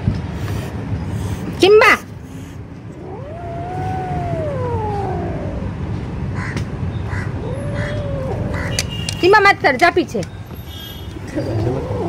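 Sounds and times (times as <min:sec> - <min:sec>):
kitten angry meow: 0:03.0 - 0:05.8, 0:07.3 - 0:08.8, 0:11.4 - 0:12.0.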